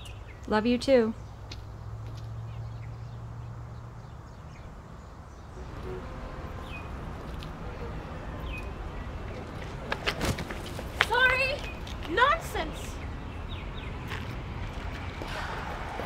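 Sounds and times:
low hum: 0:05.6 - 0:08.3.

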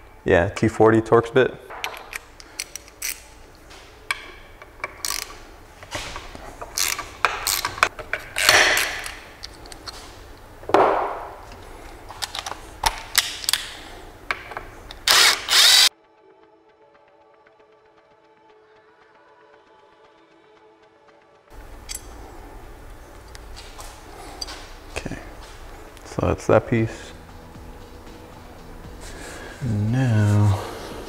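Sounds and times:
ratchet clicking: 0:04.8 - 0:05.4, 0:06.6 - 0:09.2, 0:14.9 - 0:15.9
faint music: 0:15.9 - 0:31.0
metal tools clinking: 0:21.8 - 0:22.2.

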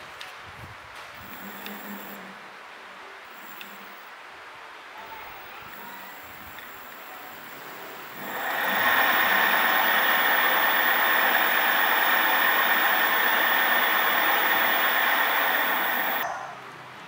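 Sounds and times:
electric motors whirring: 0:01.2 - 0:02.2, 0:05.1 - 0:16.3.

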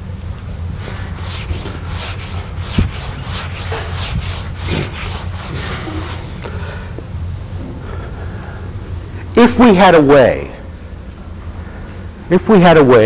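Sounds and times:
eraser rubbing blackboard: 0:00.8 - 0:06.3.

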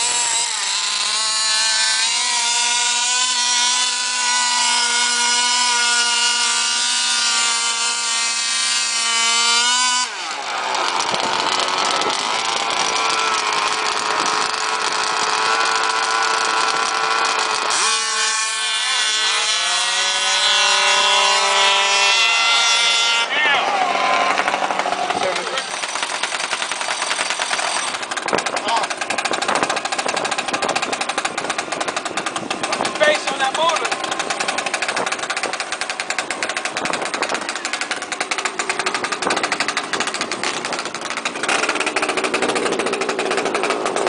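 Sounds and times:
small two-stroke engine: 0:00.0 - 0:44.0.

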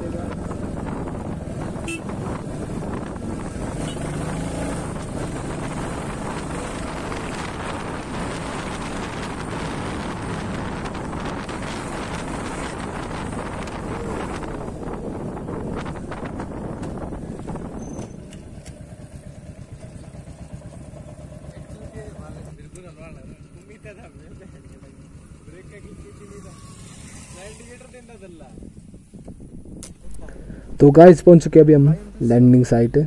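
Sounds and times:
wind rushing over microphone: 0:00.0 - 0:18.6, 0:26.7 - 0:33.0
motorcycle engine running: 0:00.0 - 0:29.7.

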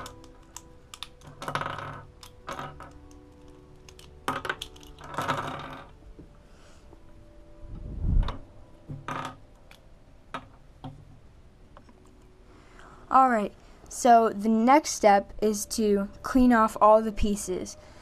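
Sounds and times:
plastic cube pieces clicking: 0:00.0 - 0:05.9
plastic pieces clattering on table: 0:00.0 - 0:05.9.

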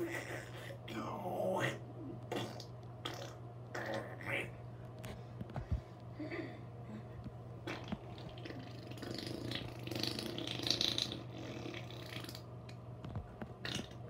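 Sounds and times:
steady low hum: 0:00.0 - 0:14.0
person making raspy mouth noises: 0:01.0 - 0:04.5, 0:07.7 - 0:12.4.

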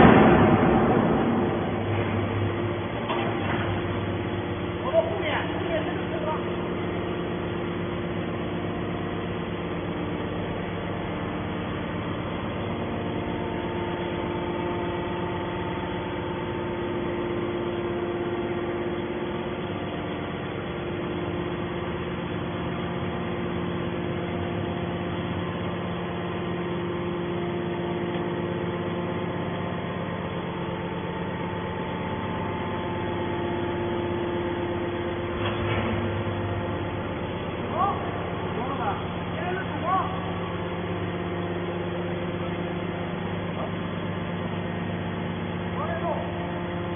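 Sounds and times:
hydraulic power unit droning: 0:00.0 - 0:46.9.

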